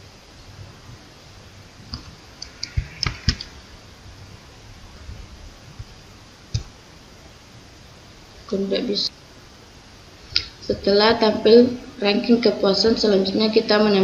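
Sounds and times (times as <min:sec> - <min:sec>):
computer mouse clicks: 0:01.9 - 0:03.5.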